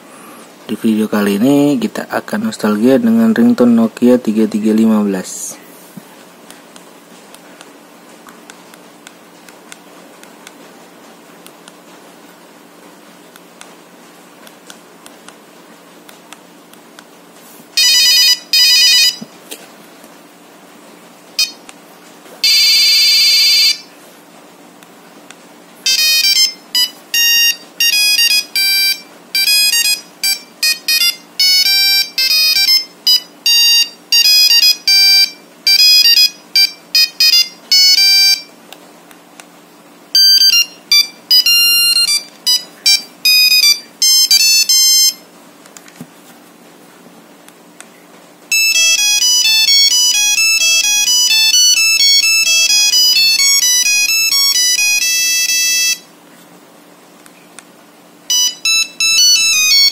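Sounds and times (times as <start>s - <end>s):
monophonic phone ringtones: 17.8s - 19.3s, 22.4s - 23.9s, 25.8s - 38.5s, 40.2s - 45.2s, 48.5s - 56.1s, 58.3s - 59.9s
short steady beep-tone: 25.9s - 38.5s, 40.2s - 45.2s, 48.5s - 56.0s, 58.3s - 59.9s.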